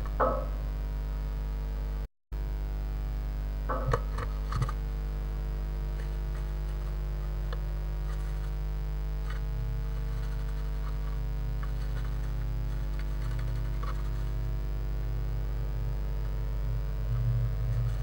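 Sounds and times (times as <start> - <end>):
electrical mains hum: 0.0 - 18.0
bird scratching and tapping: 3.7 - 4.8, 6.0 - 8.6, 9.2 - 14.6, 17.0 - 18.0.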